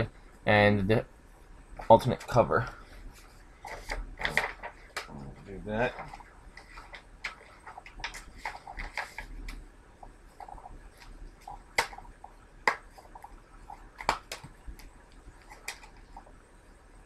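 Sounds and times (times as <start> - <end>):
paper rustling: 2.2 - 5.1, 5.8 - 9.6, 12.8 - 16.3.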